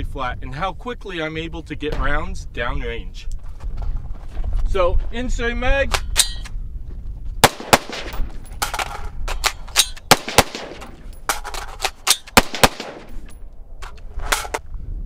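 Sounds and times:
rifle shots: 7.4 - 13.4.

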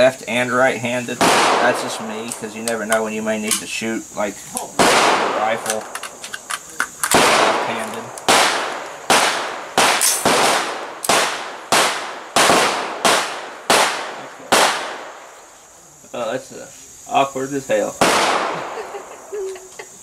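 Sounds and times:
echoing gunshots: 1.1 - 3.6, 4.7 - 6.3, 7.0 - 15.3, 18.0 - 19.0.

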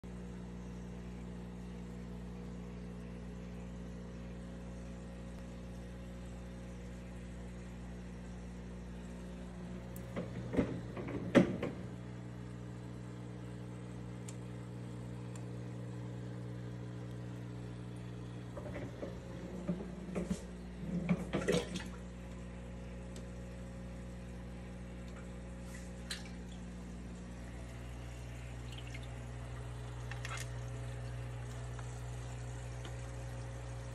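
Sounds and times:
aquarium equipment humming: 0.0 - 33.9
water trickling: 24.7 - 33.6.

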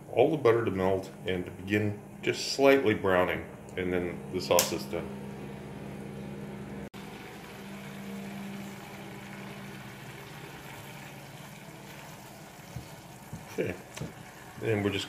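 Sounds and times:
steady low hum: 0.0 - 11.7
sauce sizzling in a frying pan: 7.0 - 14.7.

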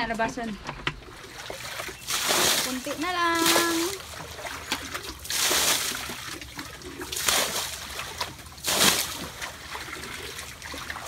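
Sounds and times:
water trickling: 0.0 - 11.0
water splashing from bucket: 0.9 - 11.0.

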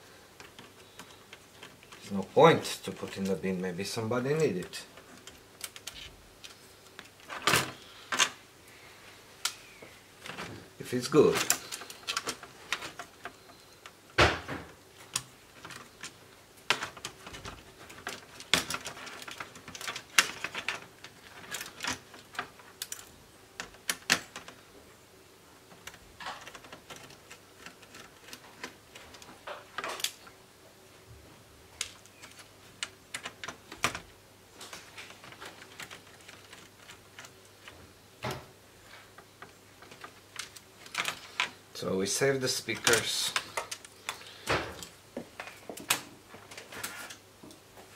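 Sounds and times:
plastic laptop casing clicks and rattles: 15.1 - 24.6.

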